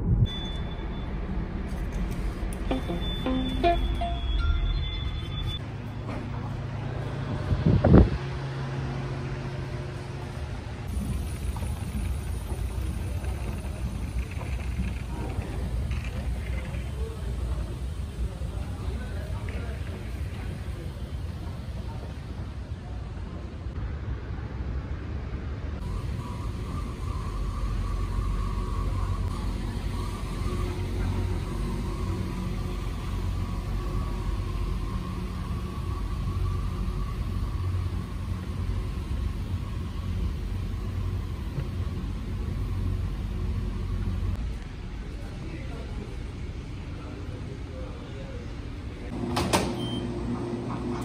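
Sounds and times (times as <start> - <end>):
escalator rumbling: 0.0 - 23.8
steady whine: 0.0 - 23.8, 25.7 - 49.3
low mechanical hum: 0.0 - 51.0
moving walkway drive rumble: 0.0 - 51.0.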